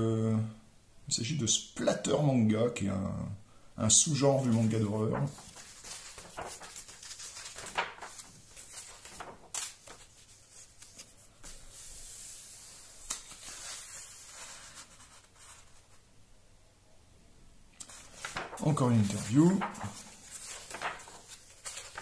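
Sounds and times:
paper rustling and sliding: 4.1 - 16.0, 17.8 - 22.0
pages snapping as they flip: 4.6 - 11.6, 13.0 - 14.2, 17.8 - 22.0.

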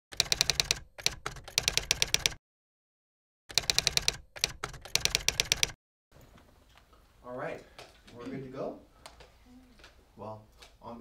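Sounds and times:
rapid keyboard key clicks: 0.1 - 2.4, 3.5 - 5.8.

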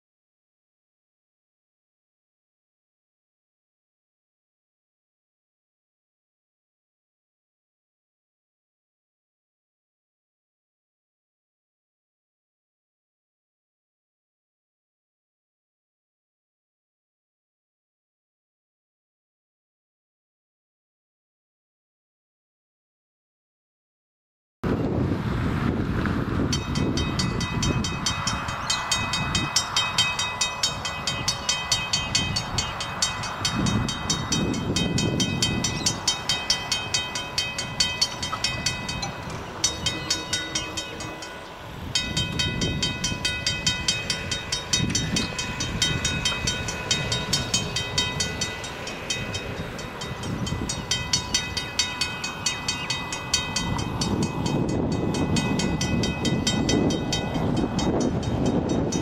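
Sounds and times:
wind rumble on microphone: 24.6 - 59.0
level crossing bell ringing: 26.6 - 59.0.

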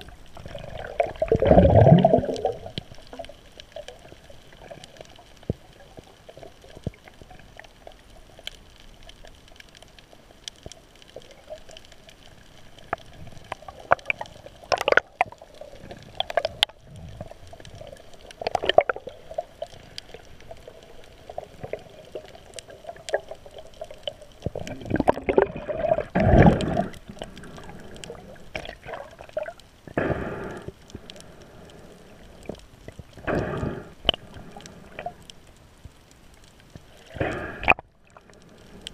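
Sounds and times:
gurgling water rushes: 0.0 - 7.9, 12.8 - 30.7
muffled underwater water movement: 0.0 - 38.9.

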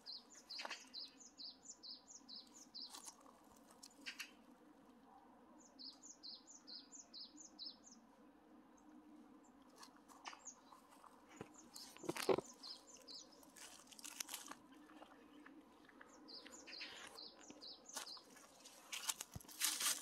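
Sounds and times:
small birds chirping: 0.0 - 4.4, 5.6 - 8.1, 9.4 - 20.0
footsteps crunching dry leaves: 2.8 - 3.9, 10.8 - 15.1, 17.9 - 20.0.

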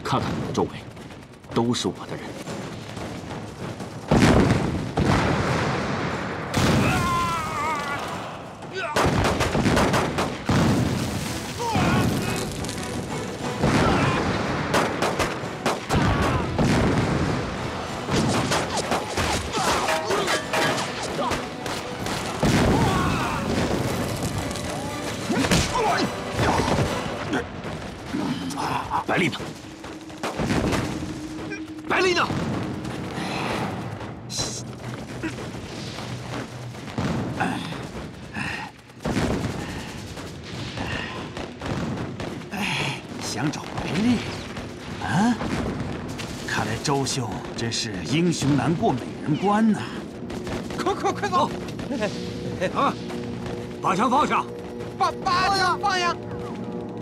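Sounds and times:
gunshots barrage: 2.3 - 28.4, 29.0 - 34.8
explosion booms: 4.1 - 7.4, 15.9 - 18.5, 22.4 - 24.6, 29.5 - 34.6.

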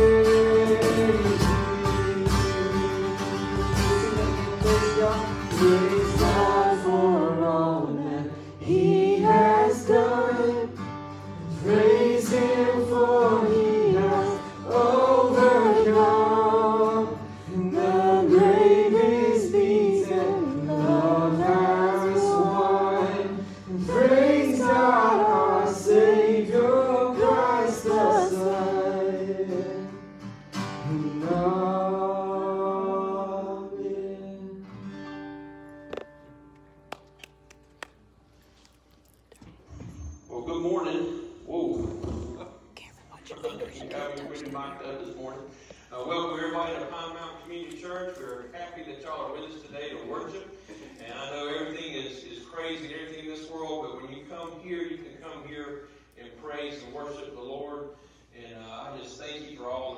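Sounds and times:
man singing: 0.0 - 10.8, 11.4 - 30.0, 30.8 - 34.7
strummed acoustic guitar: 0.0 - 36.9.

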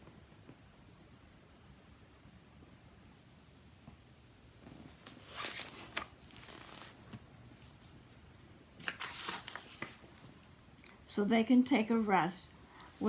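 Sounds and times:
book page rustling: 4.6 - 7.9, 8.8 - 10.2.

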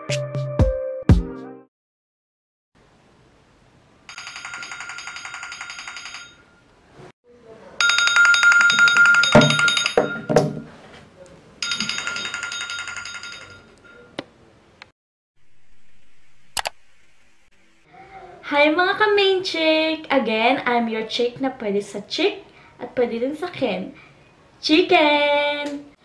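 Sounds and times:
phone ringtone trilling chime: 4.1 - 6.6, 7.8 - 10.2, 11.6 - 14.1
phone knocking on table: 8.7 - 10.7.

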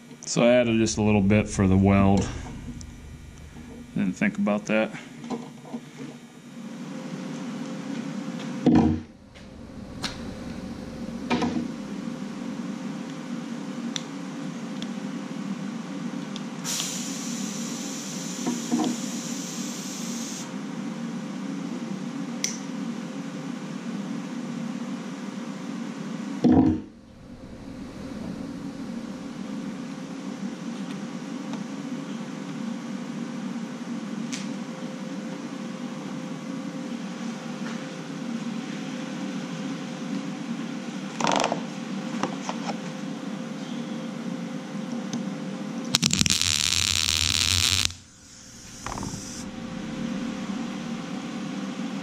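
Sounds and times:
low fan hum: 0.0 - 16.2, 26.9 - 31.8, 46.0 - 52.0
loud harsh hiss: 0.4 - 4.8, 16.6 - 20.5, 46.0 - 51.4.

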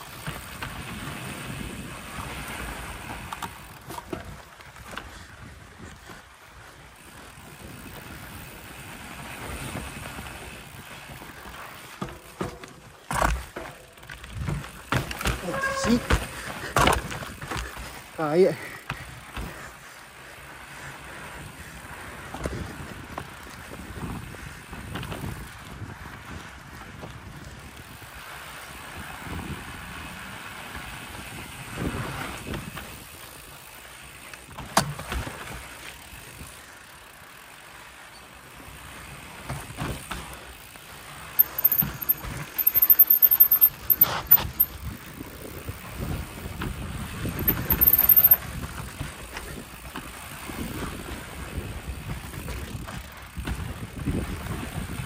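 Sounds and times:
bike knocks and rattles over rocks: 0.0 - 5.2, 9.6 - 19.8, 34.4 - 36.5, 39.1 - 51.4, 52.0 - 55.0
bike tyre rumble on dirt: 0.0 - 55.0.

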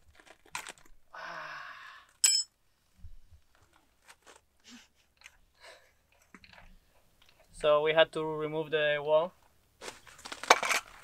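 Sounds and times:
metallic clink with ring: 2.2 - 2.5.

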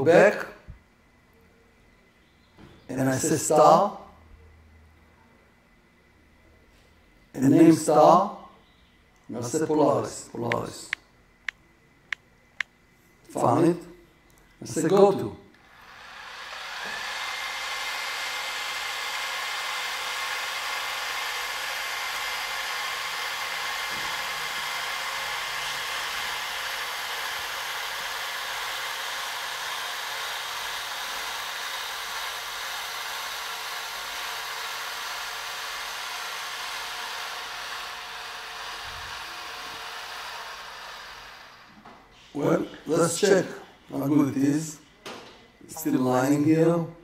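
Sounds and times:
telescope mount motors whining: 15.6 - 41.9.

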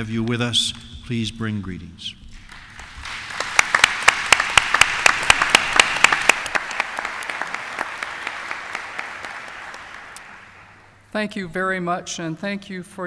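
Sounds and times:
audience applauding: 2.4 - 10.9.

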